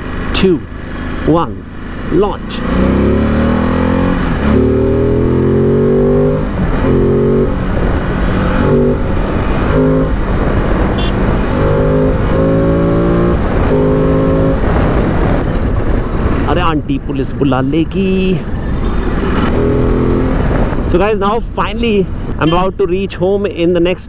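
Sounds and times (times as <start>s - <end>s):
motorcycle engine accelerating hard: 0.0s - 16.5s, 19.0s - 20.9s.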